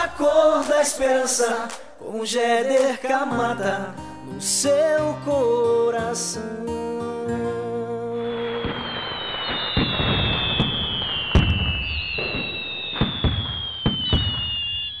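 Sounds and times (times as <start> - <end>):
fireworks crackling: 8.2 - 15.0
fireworks whistles falling in pitch: 8.2 - 15.0
fireworks bangs: 8.3 - 15.0.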